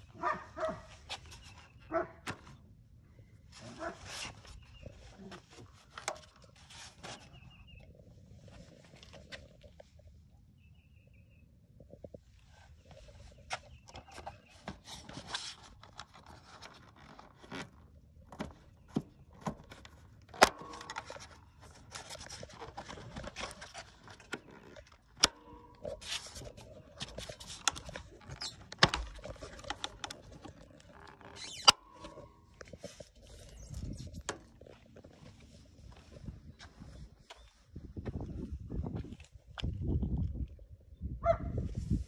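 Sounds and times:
plastic and metal parts clicking: 13.9s - 34.7s.

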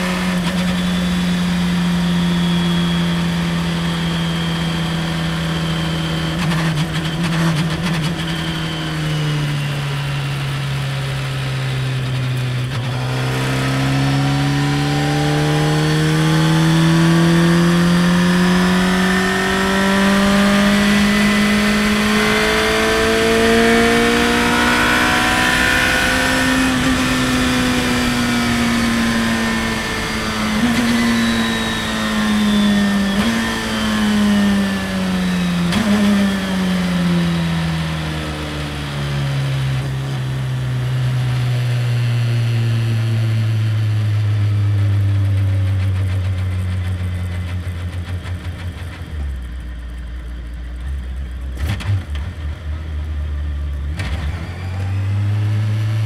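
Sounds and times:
race car engine revving: 12.0s - 38.0s.

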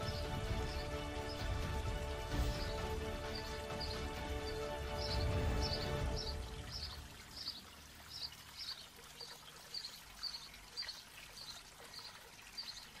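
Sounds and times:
bird chirping: 0.0s - 13.0s
faint trickle of water: 4.6s - 13.0s.

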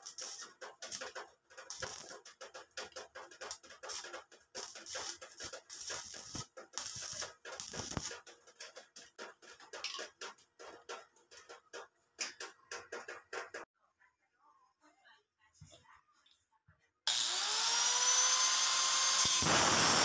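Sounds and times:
welding arc crackling: 0.0s - 9.6s, 17.1s - 20.0s.

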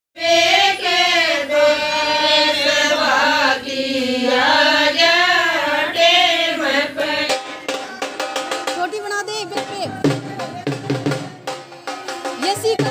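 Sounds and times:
women singing together: 0.2s - 7.7s.

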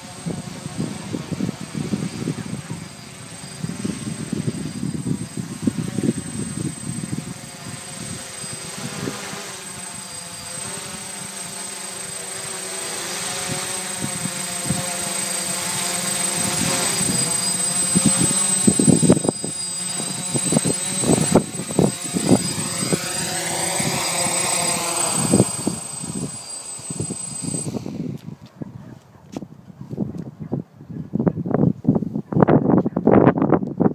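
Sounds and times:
drone propellers humming: 0.0s - 28.3s
gusts of air noise: 13.4s - 28.4s.

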